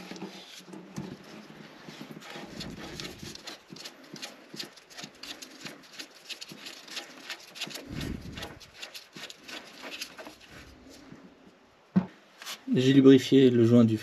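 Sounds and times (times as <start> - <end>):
oil filter clicking and scraping: 0.0 - 10.7
dull thump: 11.9 - 12.2.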